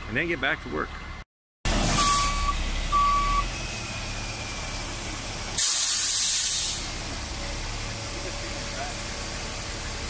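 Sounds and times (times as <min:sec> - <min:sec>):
truck diesel engine running: 0:00.0 - 0:10.0
backup alarm beeping: 0:02.0 - 0:03.5.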